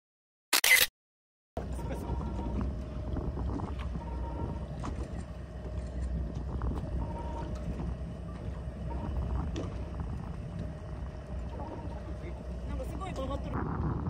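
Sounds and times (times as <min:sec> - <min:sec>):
boat engine idling: 0:01.6 - 0:13.6
faint steady hum: 0:01.6 - 0:14.0
wind on microphone: 0:02.0 - 0:05.2, 0:05.8 - 0:11.2, 0:13.4 - 0:14.0.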